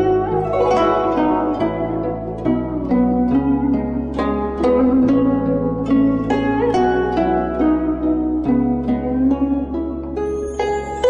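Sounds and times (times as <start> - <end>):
plucked string music: 0.0 - 11.0
steady low tone: 0.0 - 11.0.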